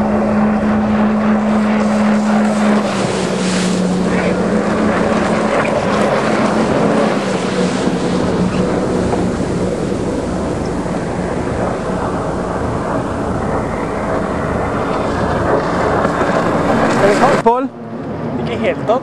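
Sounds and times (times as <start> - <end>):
water rushing under hull: 0.0 - 19.0
watercraft engine running: 0.0 - 19.0.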